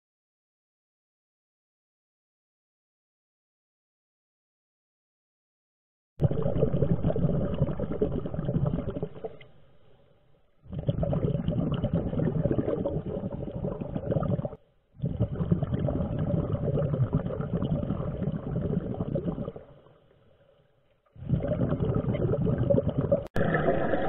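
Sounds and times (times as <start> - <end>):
underwater exhaust bubbles: 6.2 - 10.0, 10.6 - 20.2, 21.1 - 24.0.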